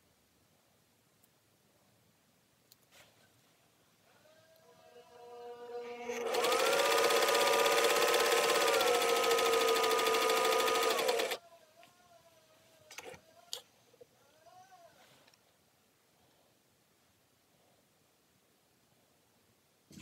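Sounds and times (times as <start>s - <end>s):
sewing machine stitching: 6.1s - 11.4s.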